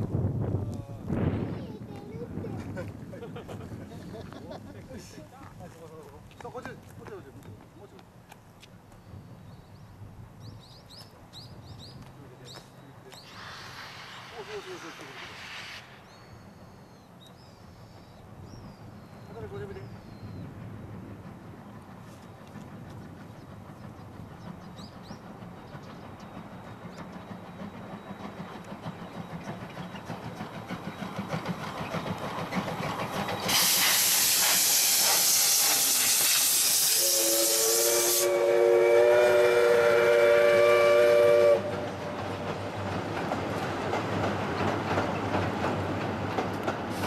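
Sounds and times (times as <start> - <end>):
steam locomotive chuffing: 12.6 - 47.0
steam hissing: 13.1 - 17.1, 23.5 - 43.2
train whistle blast: 33.5 - 42.0.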